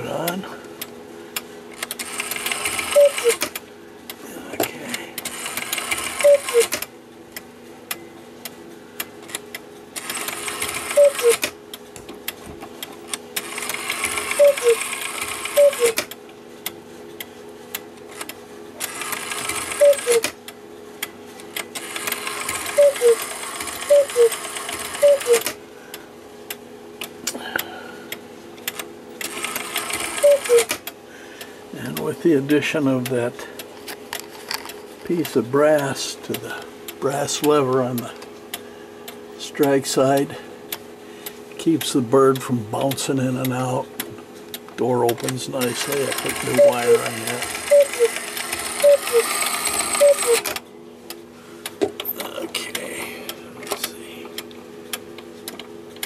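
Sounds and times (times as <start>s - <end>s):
clock mechanism whirring: 1.7s - 3.6s, 4.9s - 6.9s, 9.0s - 11.6s, 13.0s - 16.8s, 17.7s - 20.4s, 21.0s - 25.6s, 28.6s - 30.9s, 44.8s - 50.6s
cuckoo clock call: 2.5s - 3.5s, 6.1s - 6.8s, 10.8s - 11.5s, 13.8s - 16.1s, 19.5s - 20.4s, 21.8s - 25.6s, 29.4s - 30.8s, 45.6s - 50.6s.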